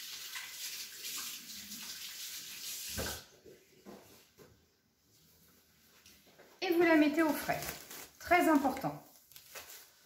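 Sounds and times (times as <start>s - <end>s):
water running from tap: 0.0s - 3.3s.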